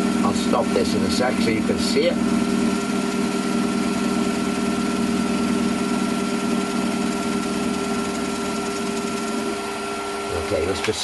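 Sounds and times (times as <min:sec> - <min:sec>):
lathe tool cutting metal: 0:00.0 - 0:11.0
metal lathe humming: 0:00.0 - 0:11.0.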